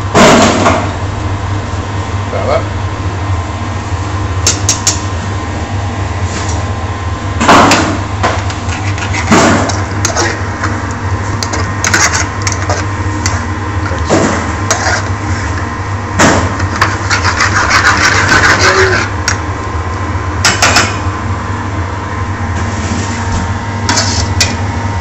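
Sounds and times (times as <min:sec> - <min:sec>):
metal spoon scraping frying pan: 0:11.4 - 0:12.9, 0:14.7 - 0:15.5, 0:16.7 - 0:19.2.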